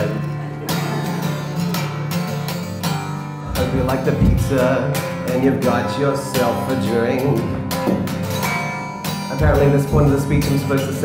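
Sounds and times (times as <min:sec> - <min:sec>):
acoustic guitar strumming: 0:00.0 - 0:11.0
person singing: 0:03.5 - 0:07.6, 0:09.3 - 0:11.0.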